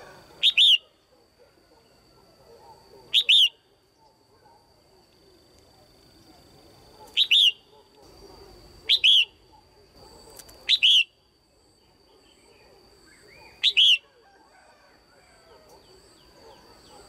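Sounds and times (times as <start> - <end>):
bulbul calling: 0.4 - 1.0, 3.0 - 3.7, 7.1 - 8.2, 8.8 - 9.7, 10.6 - 11.2, 12.2 - 14.2.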